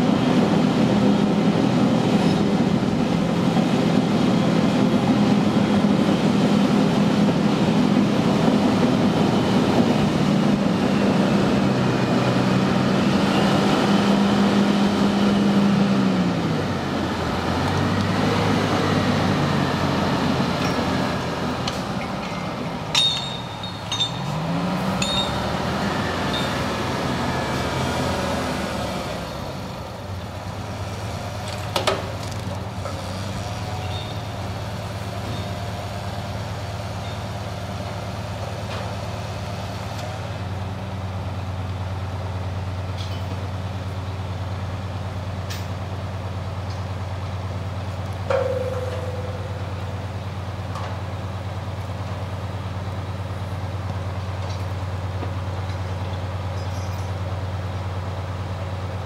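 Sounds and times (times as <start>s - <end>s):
heavy diesel engine running: 0.0s - 59.0s
sharp squeaks or clanks: 22.0s - 25.5s, 33.7s - 34.4s, 35.2s - 35.6s, 56.5s - 57.2s.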